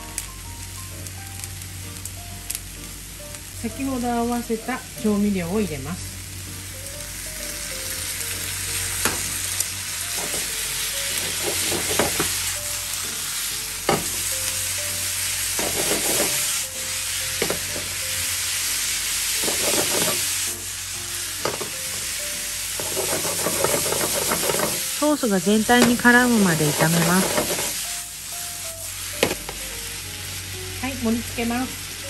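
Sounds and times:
noodles sizzling in a frying pan: 0:00.0 - 0:32.0
chopsticks tapping and scraping pan: 0:11.1 - 0:12.4, 0:15.6 - 0:16.4, 0:19.4 - 0:20.3, 0:21.4 - 0:21.7, 0:22.8 - 0:24.8, 0:25.8 - 0:27.8.

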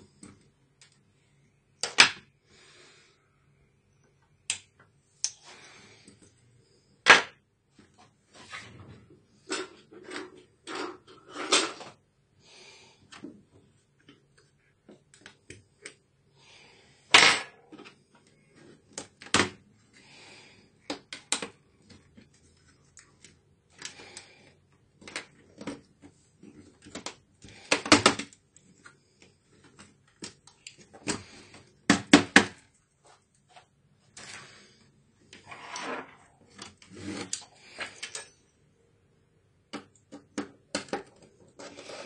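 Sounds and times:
plastic clips clicking and snapping: 0:20.9 - 0:21.6.

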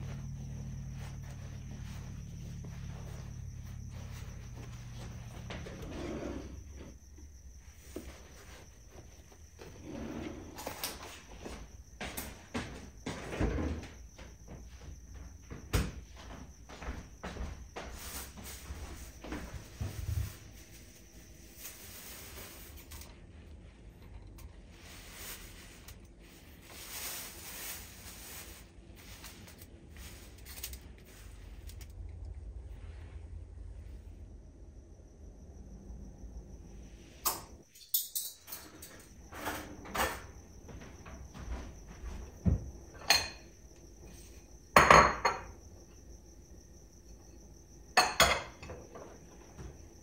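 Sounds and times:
plastic bag rustling: 0:19.9 - 0:23.0, 0:24.8 - 0:31.6
ceramic bowls clinking: 0:43.0 - 0:43.5, 0:44.8 - 0:45.6, 0:48.0 - 0:49.0.

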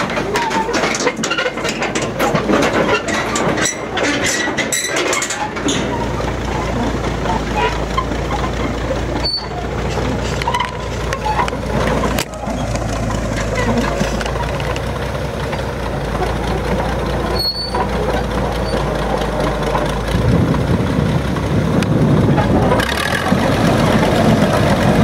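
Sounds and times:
diesel engine running: 0:00.0 - 0:25.0
steel tracks clanking: 0:00.0 - 0:25.0.

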